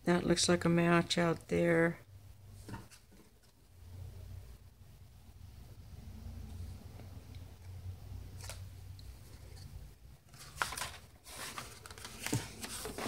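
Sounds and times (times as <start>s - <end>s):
paper rustling and sliding: 10.3s - 13.0s.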